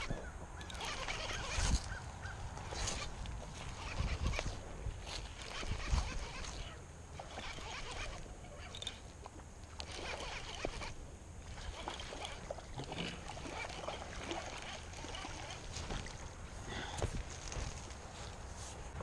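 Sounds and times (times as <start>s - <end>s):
fishing reel whirring and clicking: 0.0s - 2.0s, 2.6s - 12.6s, 13.4s - 15.7s.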